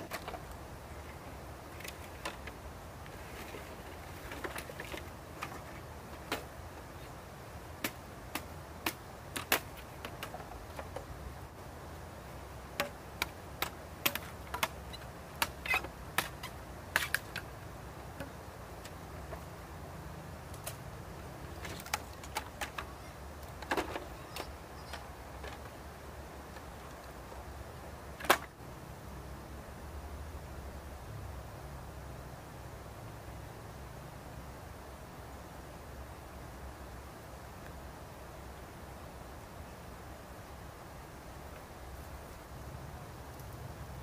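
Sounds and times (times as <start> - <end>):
bamboo pieces clacking: 7.8 - 11.1, 12.8 - 17.6, 21.6 - 25.8.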